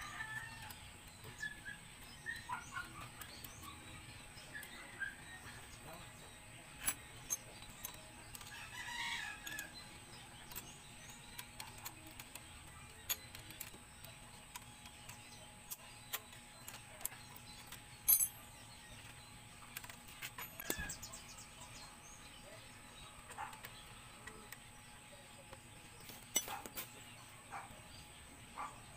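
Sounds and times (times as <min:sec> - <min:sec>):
rooster crowing: 0:00.0 - 0:00.8, 0:08.5 - 0:09.7
metal tools clinking on concrete: 0:06.8 - 0:09.6, 0:15.7 - 0:19.1, 0:19.8 - 0:21.0, 0:26.0 - 0:27.0.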